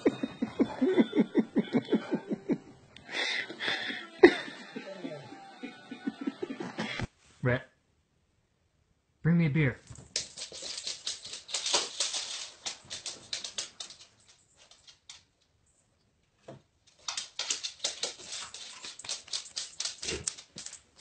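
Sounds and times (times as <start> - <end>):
dog claws clicking on hard floor: 9.9 - 15.4, 16.8 - 21.0.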